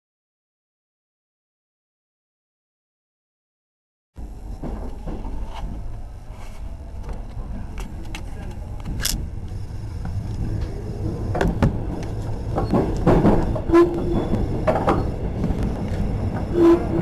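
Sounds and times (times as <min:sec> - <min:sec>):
electric train rumbling: 0:04.2 - 0:17.0.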